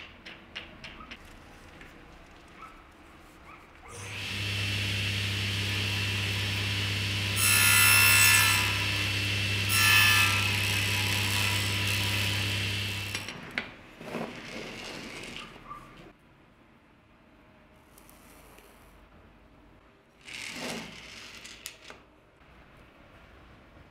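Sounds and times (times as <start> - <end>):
saw blade cutting wood: 3.9 - 13.3
table saw motor running: 4.0 - 13.3.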